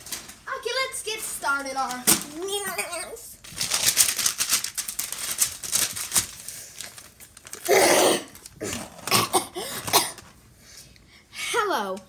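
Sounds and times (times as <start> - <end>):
crinkly sheet crumpling: 0.0 - 9.2
boy vocal burst: 7.7 - 8.3.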